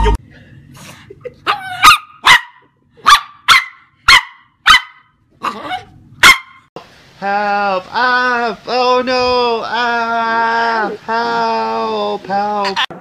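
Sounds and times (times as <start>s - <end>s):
dog barking sharply: 1.8s - 6.6s.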